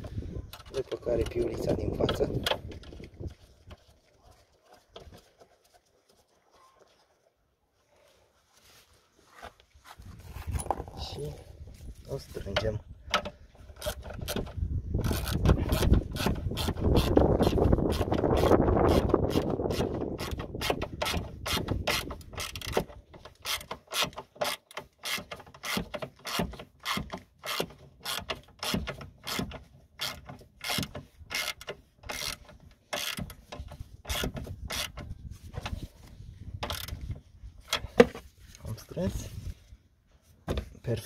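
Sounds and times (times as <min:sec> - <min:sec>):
hand ratchet clicking: 0:13.1 - 0:35.1, 0:36.6 - 0:37.0.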